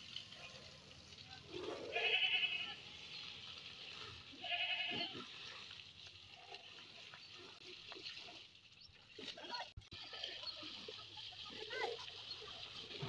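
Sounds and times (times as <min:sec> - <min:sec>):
garden hose spraying water: 0:00.0 - 0:13.0
goat bleating: 0:01.9 - 0:02.8, 0:04.3 - 0:05.3.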